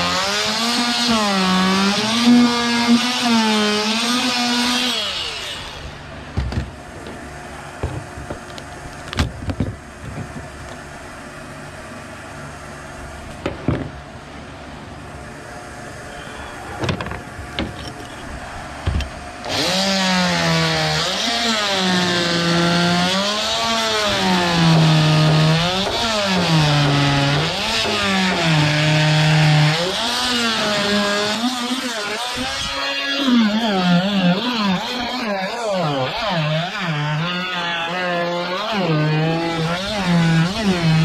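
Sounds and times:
cordless power tool running: 0.0s - 10.8s, 16.8s - 41.0s.

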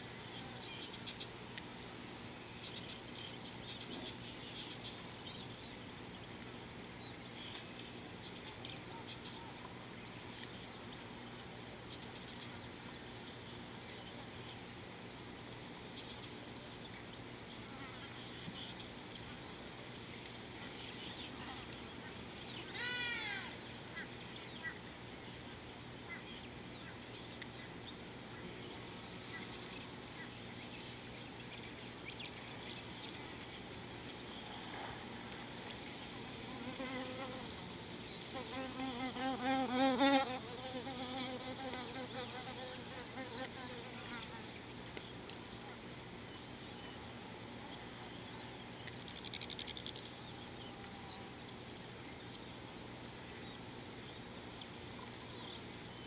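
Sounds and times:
flies and insects buzzing: 0.0s - 46.7s.

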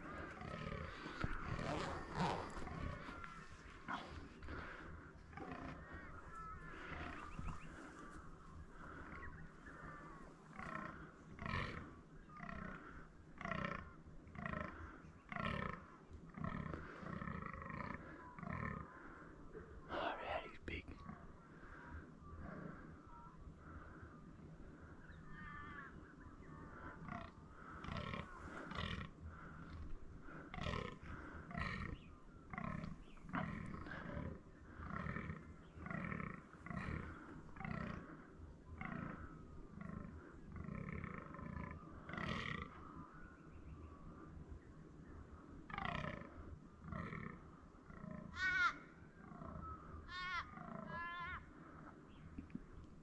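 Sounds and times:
deer grunting: 0.0s - 19.1s, 27.0s - 38.2s, 38.8s - 42.9s.

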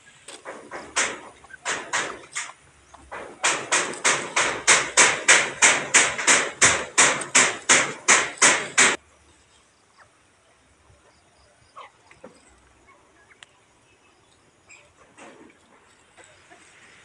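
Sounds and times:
hammer blows: 0.4s - 9.0s.

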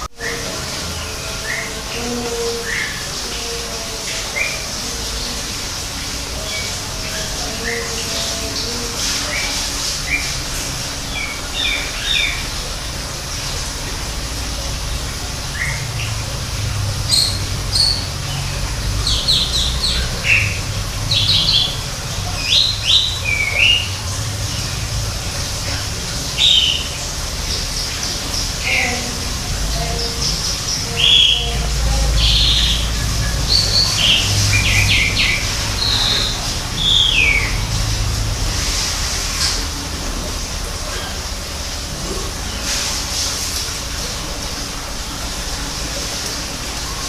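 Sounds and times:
steady background hiss: 0.0s - 47.0s.

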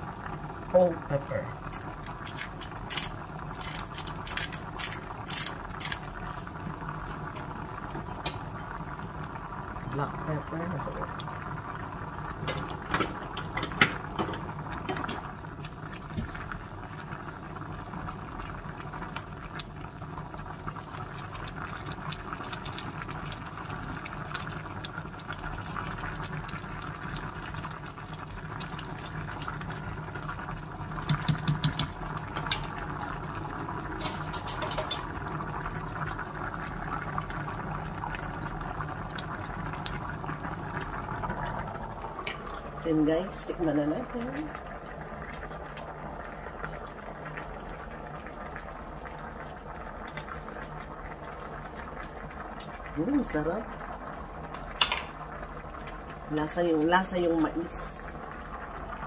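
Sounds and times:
low steady hum: 0.0s - 59.0s
stew bubbling: 0.0s - 59.0s
spoon tapping in pot: 31.0s - 32.0s.

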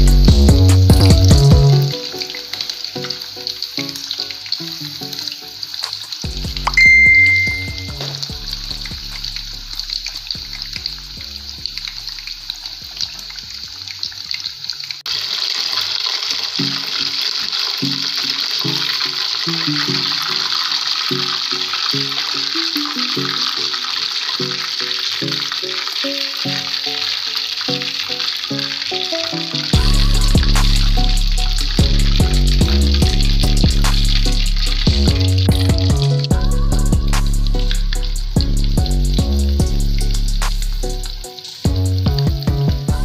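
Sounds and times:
background music: 0.0s - 14.8s, 16.4s - 43.0s
oil sizzling while deep-frying: 0.0s - 43.0s
short loud beep: 6.7s - 8.0s.

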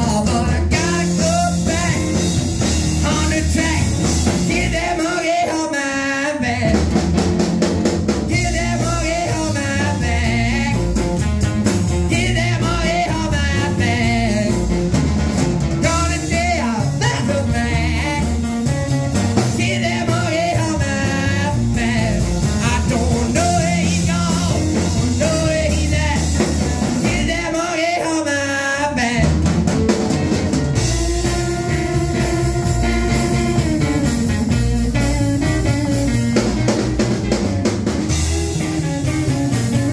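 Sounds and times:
man singing: 0.0s - 7.0s, 8.2s - 15.0s, 15.8s - 29.6s, 30.7s - 34.6s
drum kit: 0.0s - 28.1s, 29.0s - 39.9s
electric guitar: 0.0s - 39.9s
upright bass: 0.0s - 39.9s.

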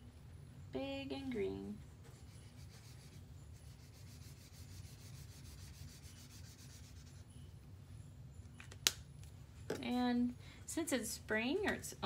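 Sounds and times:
marker scribbling on paper: 2.0s - 7.3s.

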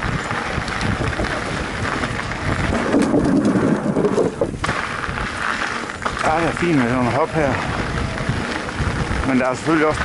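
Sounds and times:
bike tyre rumble on trail: 0.0s - 10.0s
wind buffeting microphone: 0.0s - 10.0s.

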